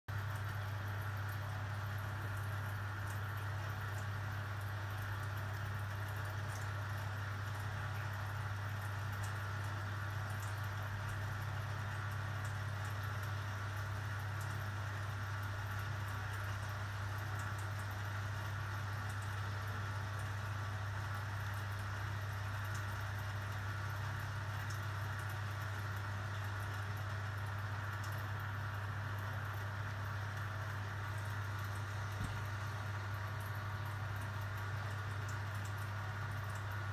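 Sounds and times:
low electrical hum: 0.1s - 36.9s.

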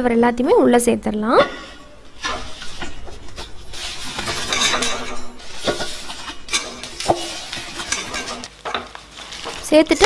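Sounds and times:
paper rustling: 3.7s - 10.0s.

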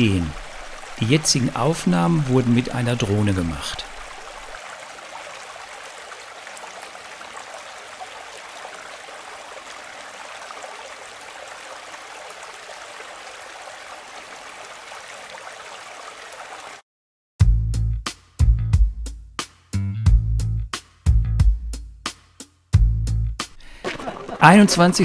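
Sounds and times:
creek water rushing: 0.0s - 16.8s, 23.6s - 25.0s.

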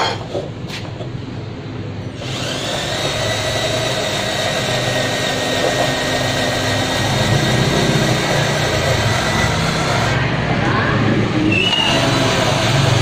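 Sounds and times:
cordless drill motor whining: 2.2s - 10.2s, 11.7s - 13.0s.

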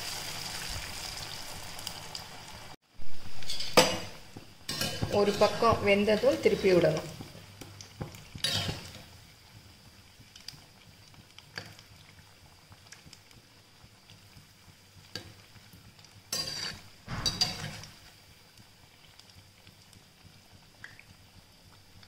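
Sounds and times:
fritters sizzling in hot oil: 0.0s - 22.0s
metal skimmer scraping pan: 3.4s - 7.0s, 8.4s - 9.0s, 16.4s - 18.0s.

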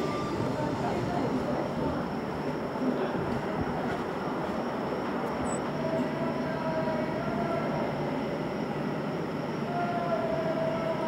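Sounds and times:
rumbling outdoor background noise: 0.0s - 11.0s.

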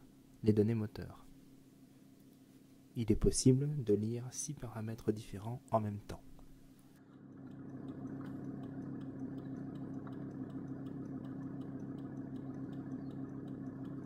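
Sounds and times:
light engine ticking: 7.1s - 14.0s
diesel engine idling: 7.3s - 14.0s.

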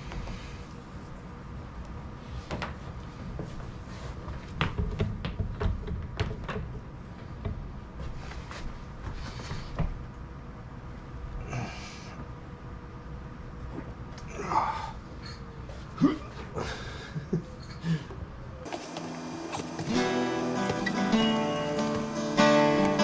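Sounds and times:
person breathing or grunting: 14.3s - 17.2s.

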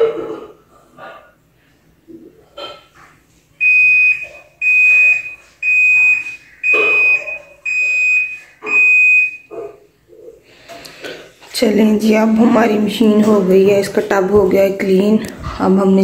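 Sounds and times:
washing machine high beeps: 3.6s - 9.6s.

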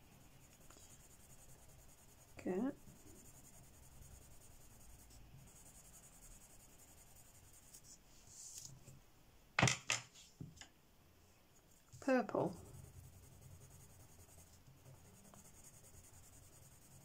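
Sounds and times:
pencil scratching on paper: 0.0s - 8.7s, 11.7s - 17.0s
pencil clacks put down: 9.6s - 10.7s.

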